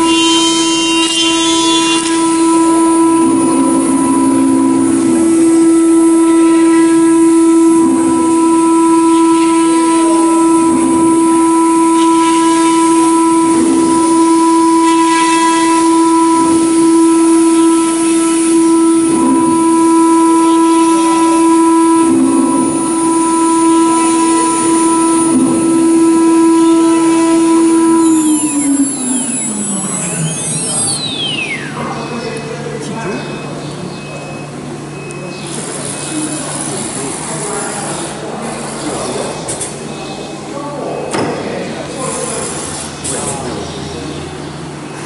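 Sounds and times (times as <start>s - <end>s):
end mill cutting grooves: 0.0s - 32.0s
router spindle whining: 0.0s - 40.4s.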